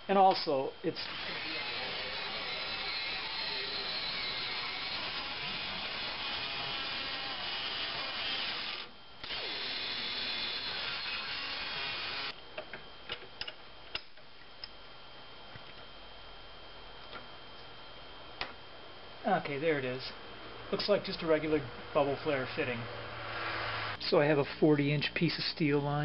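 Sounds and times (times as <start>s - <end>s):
rotary tool cutting metal: 1.0s - 12.3s.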